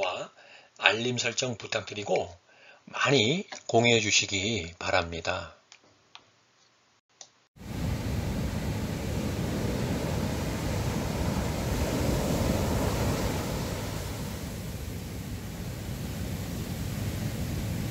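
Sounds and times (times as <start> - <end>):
ocean surf breaking on beach: 7.6 - 17.9.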